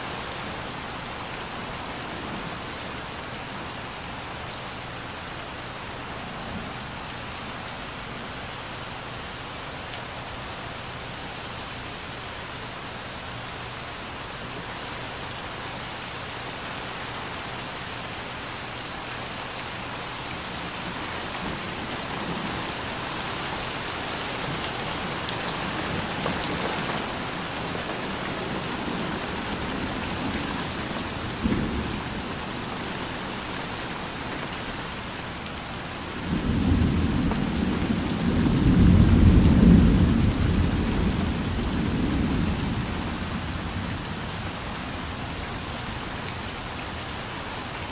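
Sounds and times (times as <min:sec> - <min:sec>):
rain falling on pool and concrete: 0:00.0 - 0:47.9
low rumble of thunder: 0:20.9 - 0:33.4, 0:36.2 - 0:45.8.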